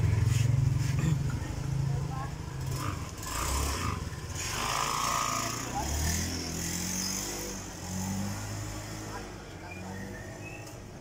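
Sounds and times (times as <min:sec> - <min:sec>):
scooter engine running: 0:00.0 - 0:07.9.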